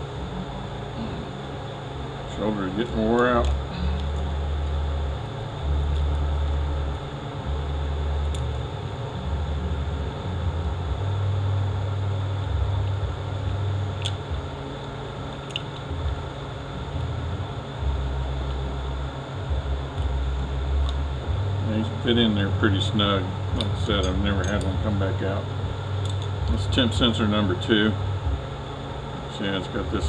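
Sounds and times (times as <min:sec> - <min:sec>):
machinery humming: 0:00.0 - 0:30.0
small metal parts clicking: 0:23.6 - 0:24.8.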